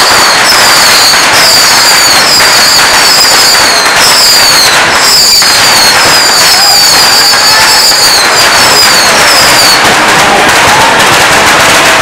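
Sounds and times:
rocket whistles sliding down: 0.0s - 9.8s
bottle rockets crackling and popping: 0.0s - 12.0s.

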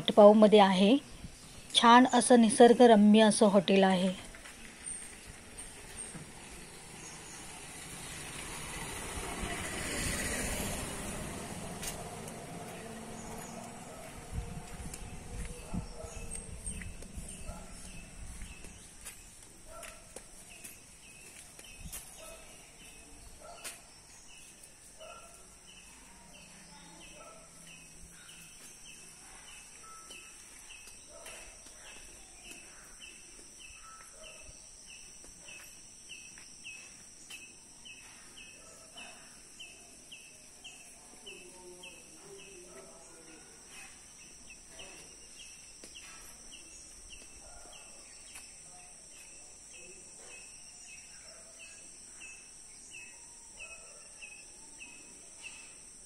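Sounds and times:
bird chirps: 20.5s - 55.8s.

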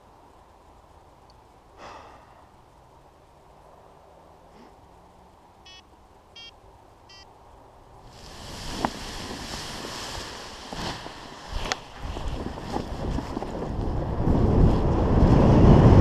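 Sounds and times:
wind noise on microphone: 8.0s - 16.0s.

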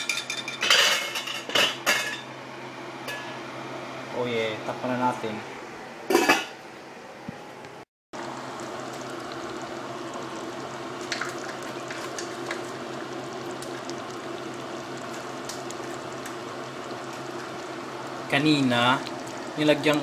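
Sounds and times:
pot of porridge bubbling: 8.2s - 20.0s.

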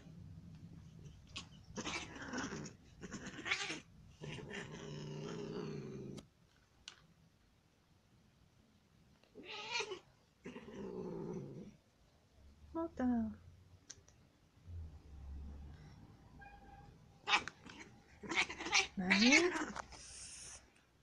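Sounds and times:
cats hissing: 0.9s - 6.2s, 17.2s - 20.7s
cats yowling: 1.3s - 5.4s, 9.4s - 10.0s, 17.2s - 19.8s.

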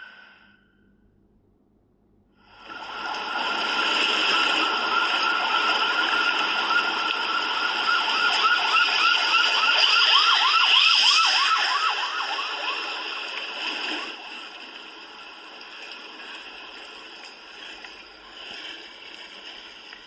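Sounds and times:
siren wailing: 2.7s - 16.9s
steady hiss: 13.6s - 20.0s.

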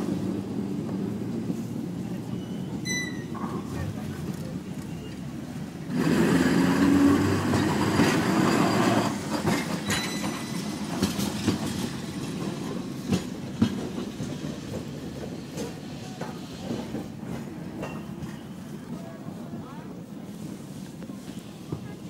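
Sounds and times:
tram passing: 0.0s - 22.0s
wheels clicking over rail joints: 2.8s - 18.6s.

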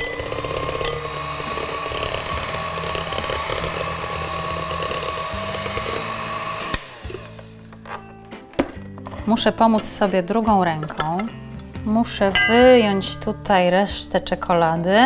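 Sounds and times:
electric hand mixer whirring: 0.0s - 7.7s.

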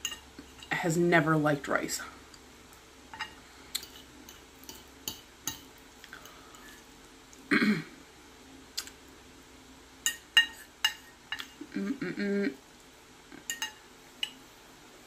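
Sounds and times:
person clearing throat: 7.5s - 8.0s.

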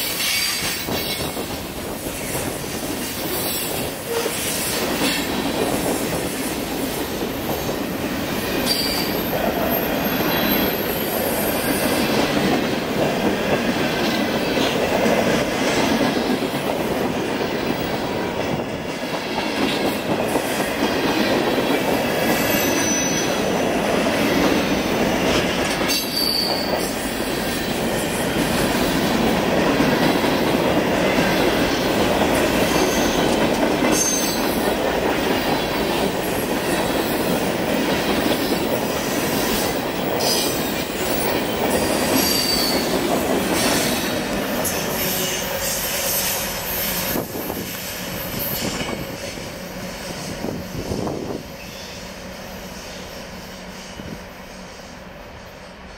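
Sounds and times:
train wheels rumbling on rails: 0.0s - 55.9s
high wheel squeals: 8.6s - 11.7s, 22.4s - 23.4s, 25.9s - 26.8s, 42.2s - 42.9s.

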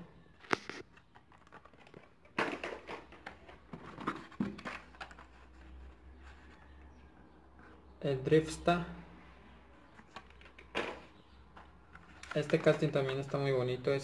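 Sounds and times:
plastic and cardboard rustling: 0.2s - 6.8s, 9.8s - 13.7s.

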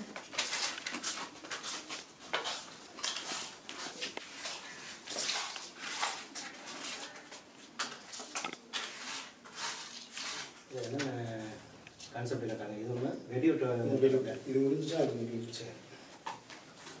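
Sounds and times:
paper tubes scraping and rustling: 0.2s - 11.7s.

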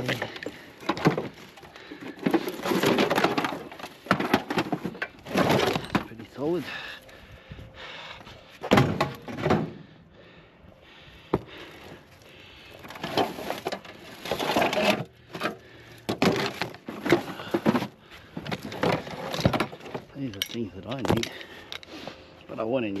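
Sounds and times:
scrap clattering and knocking: 0.0s - 6.2s, 12.9s - 21.9s.

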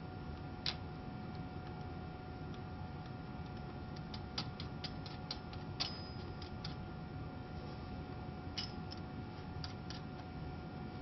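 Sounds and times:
steady hum: 0.0s - 11.0s
small metal clicks: 2.5s - 6.8s, 9.6s - 10.3s.

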